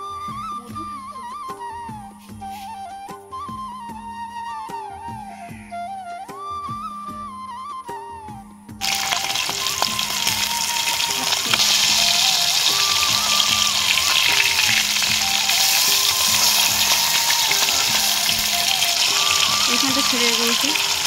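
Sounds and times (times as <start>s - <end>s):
melodic background music: 0.0s - 21.0s
fish sizzling in hot oil: 8.8s - 21.0s.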